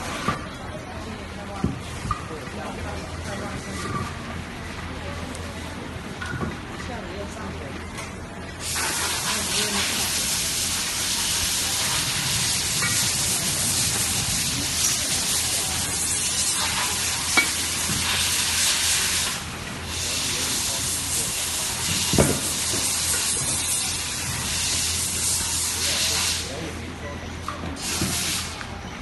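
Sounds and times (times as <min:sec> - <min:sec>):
steady hiss: 0:08.6 - 0:26.7.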